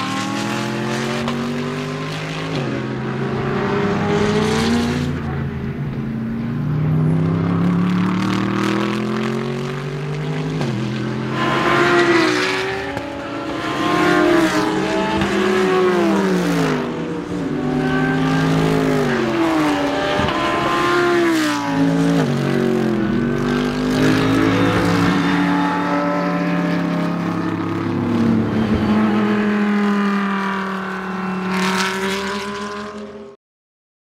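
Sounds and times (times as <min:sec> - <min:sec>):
race car engine at speed: 0:00.0 - 0:33.4.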